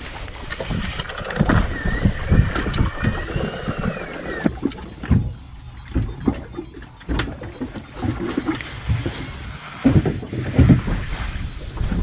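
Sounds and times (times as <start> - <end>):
fishing reel cranking: 1.0 - 8.7
knocks and thumps from rod: 4.4 - 9.2, 9.8 - 11.2.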